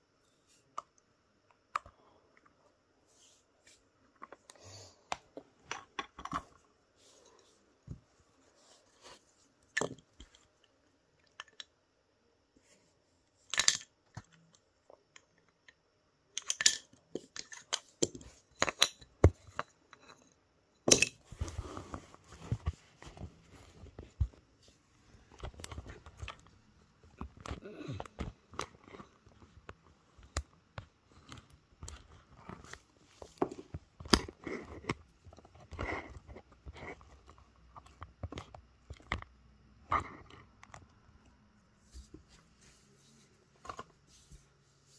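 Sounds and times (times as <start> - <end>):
toy train track pieces clicking: 16.4 - 17.8.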